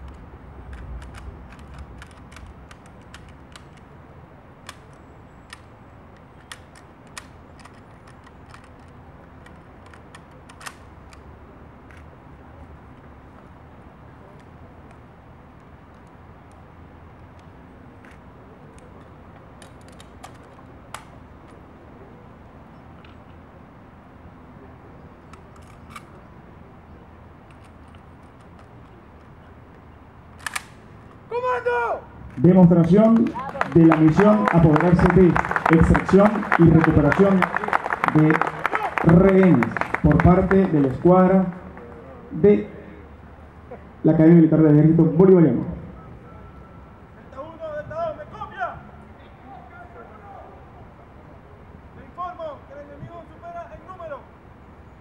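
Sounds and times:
sharp mechanical clicks: 0.0s - 4.0s, 4.6s - 11.3s, 30.4s - 31.0s
low outdoor rumble: 0.0s - 55.0s.

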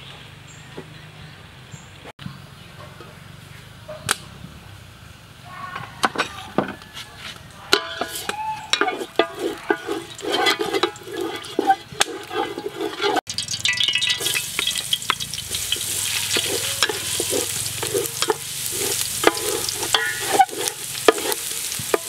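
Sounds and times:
wooden spatula scraping pot: 7.2s - 22.0s
oil crackling and spitting: 8.1s - 22.0s
oil pouring into pot: 9.3s - 21.0s.

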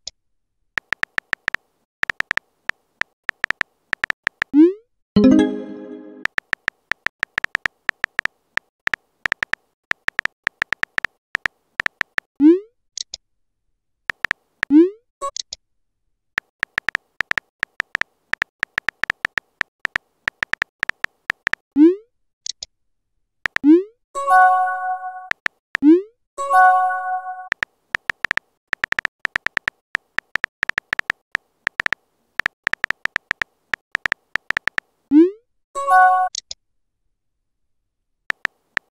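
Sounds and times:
phone keyboard typing clicks: 0.8s - 4.6s, 5.2s - 8.3s, 8.9s - 12.3s, 14.1s - 14.4s, 16.4s - 21.6s, 27.5s - 34.9s, 38.3s - 38.9s
synth chime: 5.2s - 6.2s
rising bloop message sounds: 5.2s - 6.3s.

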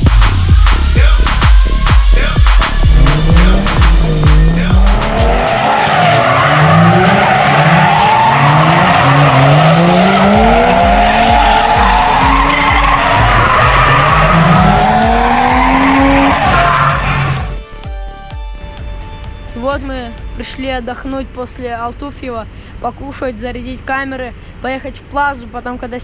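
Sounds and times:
electronic music with bass beat: 0.0s - 20.4s
rising engine-like glides: 1.7s - 17.6s.

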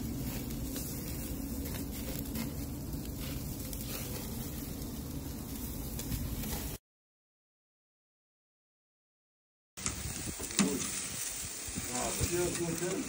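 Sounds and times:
steady low rumble: 0.0s - 6.5s
crackling coals: 0.0s - 6.8s, 9.8s - 13.0s
meat sizzling over charcoal: 0.0s - 6.8s, 9.8s - 13.0s.

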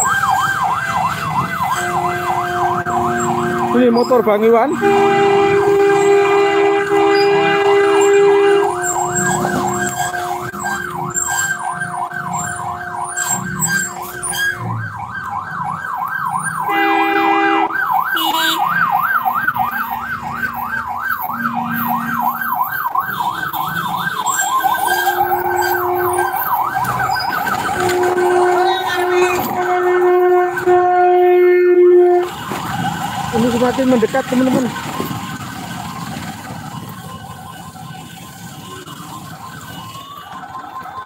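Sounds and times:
electronic siren yelping: 0.0s - 41.0s
long horn blasts: 1.8s - 3.9s, 4.7s - 10.9s, 16.6s - 18.7s, 24.8s - 26.5s, 27.7s - 32.4s.

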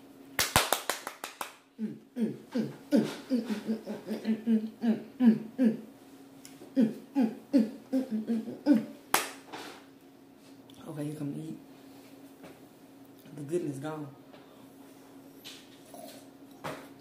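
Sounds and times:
person making falling vocal sounds: 1.8s - 5.9s, 6.7s - 9.0s.

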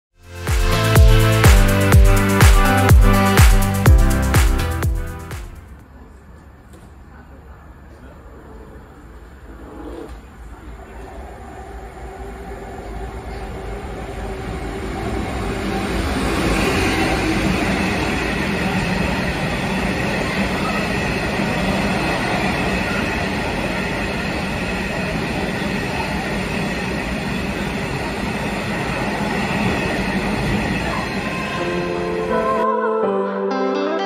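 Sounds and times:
diesel locomotive passing: 8.7s - 32.7s.

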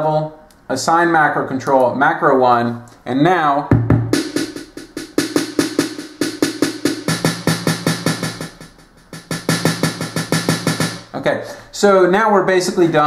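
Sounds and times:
electronic drum loop: 3.7s - 11.1s.

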